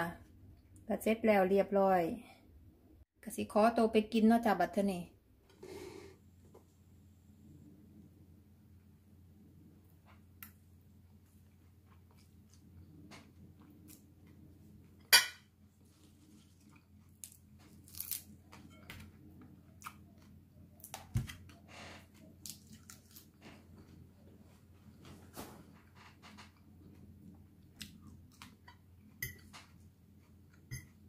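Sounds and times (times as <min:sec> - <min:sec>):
chewing and crunching: 0:15.8 - 0:18.7, 0:22.2 - 0:24.0.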